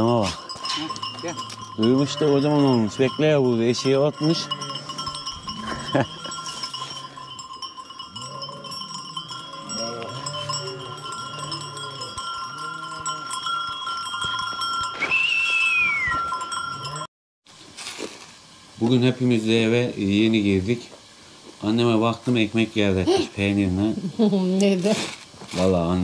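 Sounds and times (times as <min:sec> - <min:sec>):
sheep bells ringing: 0:00.0 - 0:17.1.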